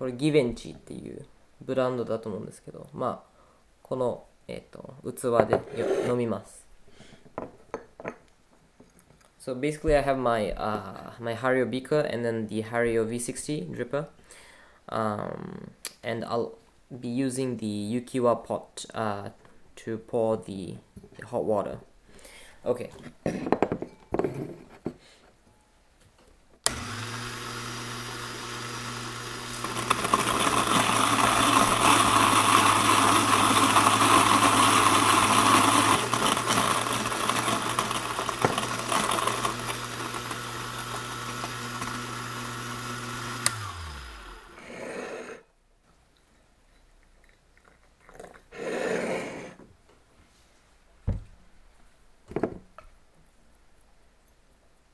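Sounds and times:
electric coffee grinder grinding: 26.7 - 45.4.

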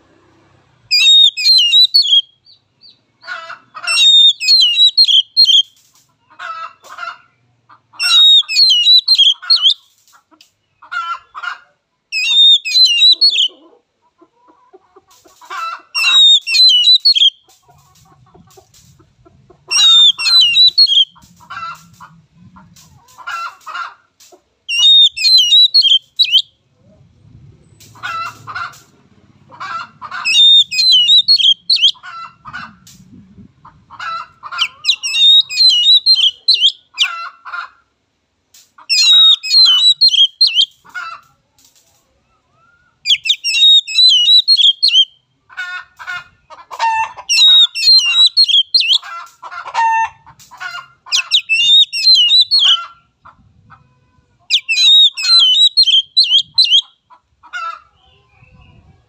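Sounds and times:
bird singing whistled phrases: 0.9 - 3.0, 3.9 - 5.7, 8.0 - 9.8, 12.2 - 13.5, 16.0 - 17.4, 19.8 - 21.1, 24.7 - 26.5, 30.3 - 32.0, 34.8 - 36.8, 38.9 - 40.7, 42.8 - 45.1, 47.3 - 49.0, 51.2 - 52.8, 54.5 - 56.8.

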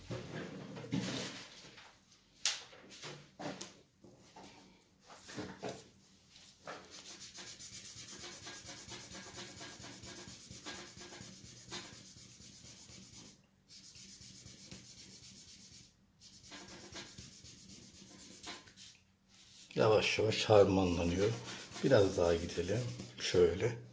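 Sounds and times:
cotton scrubbing on paper: 6.8 - 23.6.

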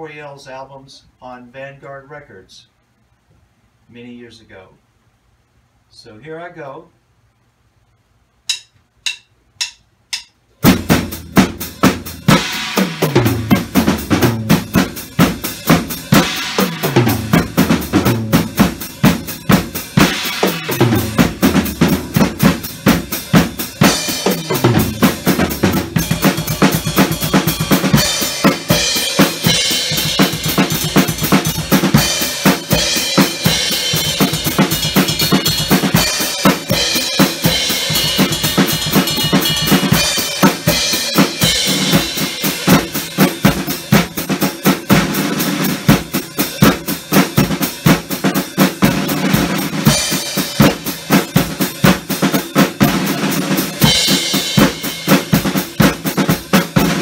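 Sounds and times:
count-in clicks: 8.4 - 10.4
drum kit playing groove: 8.5 - 57.0.

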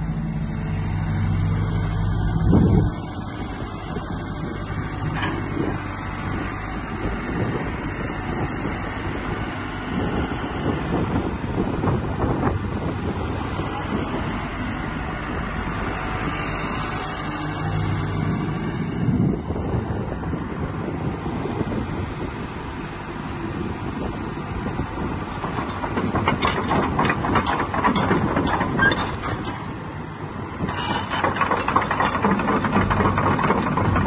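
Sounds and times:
excavator diesel engine idling: 25.0 - 34.0.

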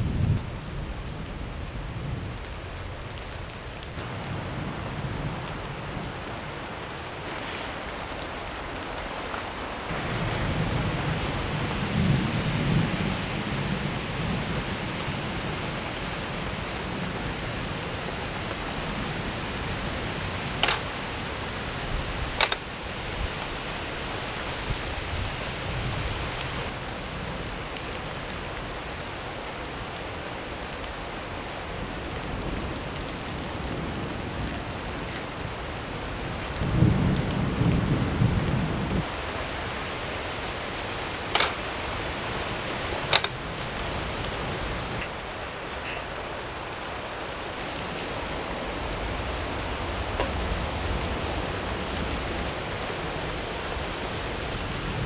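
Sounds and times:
thunder rumble: 0.0 - 29.4, 31.0 - 55.0
steady rain: 0.0 - 55.0
sharp clicks: 20.6 - 20.9, 22.4 - 22.6, 41.3 - 41.6, 43.1 - 43.4.

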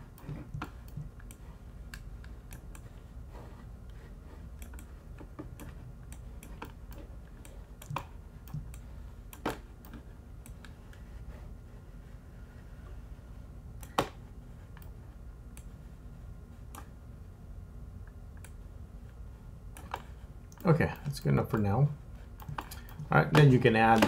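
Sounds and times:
low steady hum: 0.0 - 24.0
mouse and keyboard clicks: 4.6 - 10.8, 22.4 - 24.0.

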